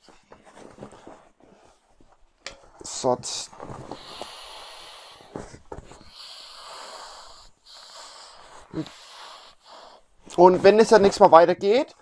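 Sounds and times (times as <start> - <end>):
fabric rustling: 0.0 - 4.4, 10.2 - 11.8.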